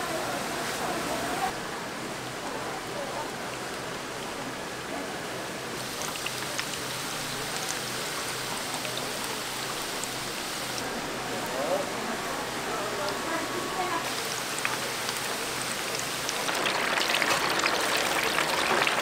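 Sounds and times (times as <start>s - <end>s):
food sizzling in hot oil: 5.8s - 10.8s, 14.0s - 19.0s
oil popping and crackling: 5.8s - 10.8s, 14.1s - 19.0s.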